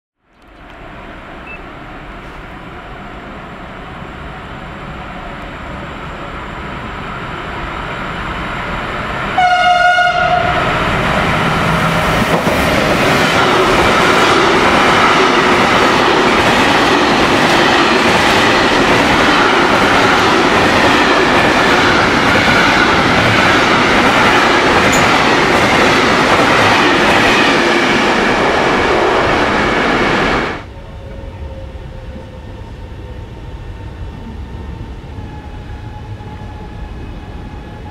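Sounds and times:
station background noise: 0:00.4 - 0:09.3, 0:10.7 - 0:37.9
train horn: 0:09.4 - 0:10.8.

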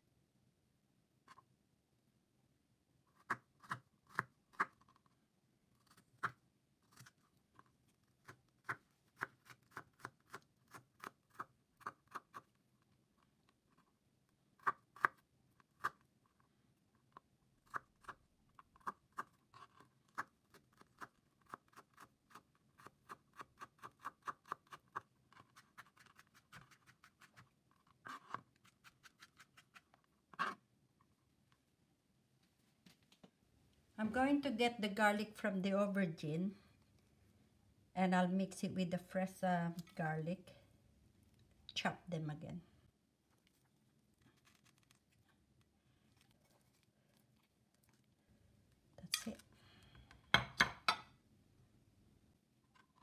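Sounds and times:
knife chopping on plastic board: 0:50.3 - 0:51.0.

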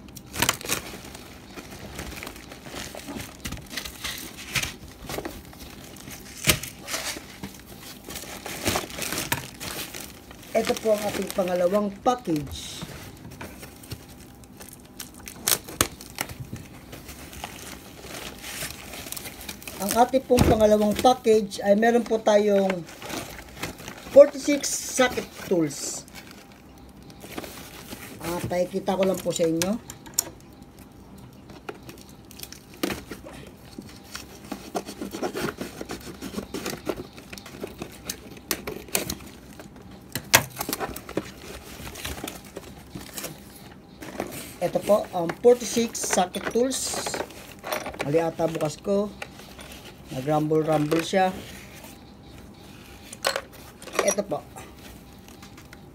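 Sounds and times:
plastic bag rustling and crinkling: 0:00.0 - 0:55.9
cardboard box rustling and scraping: 0:32.9 - 0:38.5.

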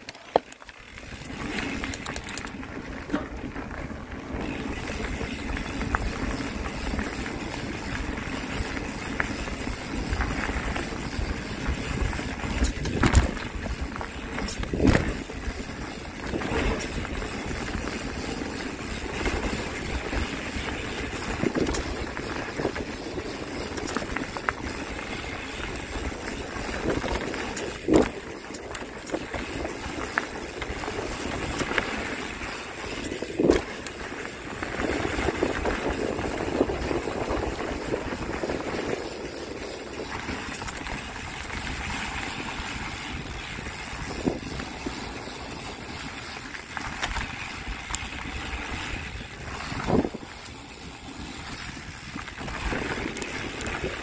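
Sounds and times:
bike riding rumble: 0:00.0 - 0:54.0
wind noise: 0:00.9 - 0:54.0.

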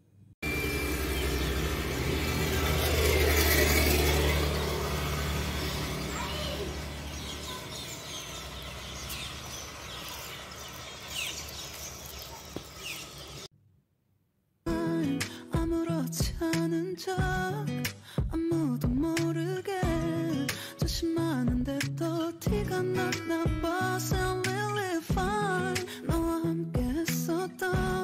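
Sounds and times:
vehicle engine passing: 0:00.4 - 0:13.5
small birds chirping: 0:04.2 - 0:13.5.

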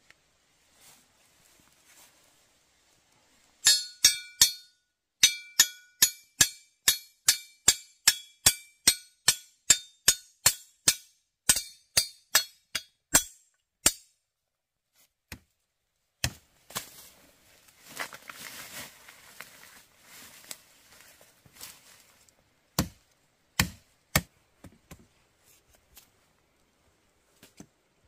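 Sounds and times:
sharp ringing strikes: 0:03.6 - 0:12.6.

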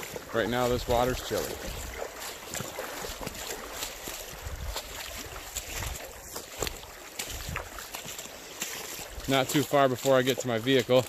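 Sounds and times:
boots wading through water: 0:00.0 - 0:11.0
wind on microphone: 0:04.3 - 0:06.0, 0:07.3 - 0:07.8.

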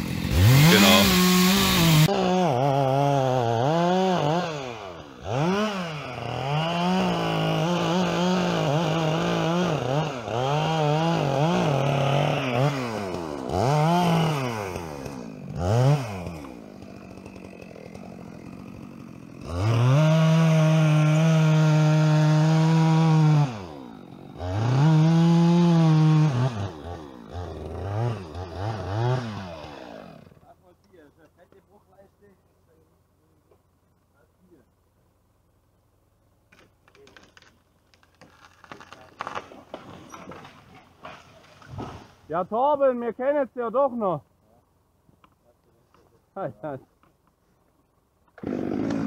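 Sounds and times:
chainsaw revving and cutting: 0:00.0 - 0:30.6, 0:48.3 - 0:49.0.

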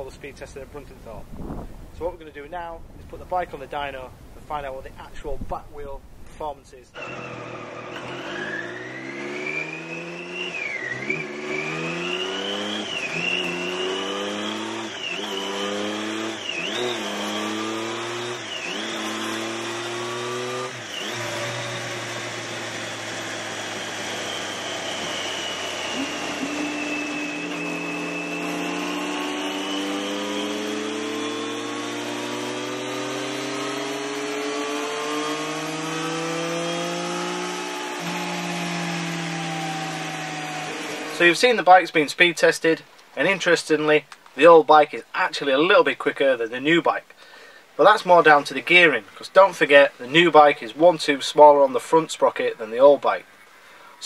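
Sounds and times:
motorcycle engine revving on dyno: 0:06.9 - 0:41.6
tyre and rollers whirring: 0:07.0 - 0:41.4.

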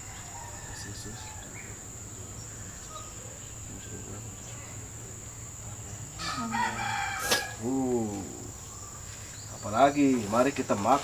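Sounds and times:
rooster crowing: 0:00.0 - 0:01.9, 0:06.2 - 0:08.0.

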